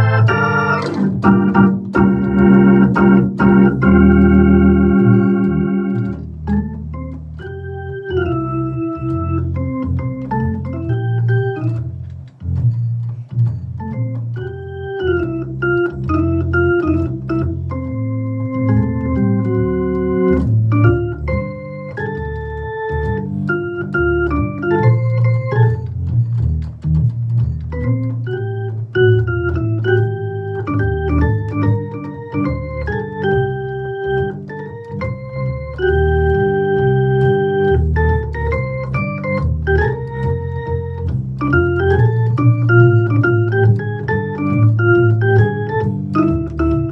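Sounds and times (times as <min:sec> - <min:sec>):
drawbar organ melody: 0:00.0 - 0:46.9.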